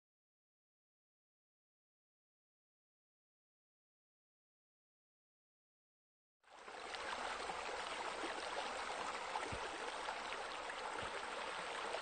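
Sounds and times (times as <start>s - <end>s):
running water trickling and splashing: 6.5s - 12.0s.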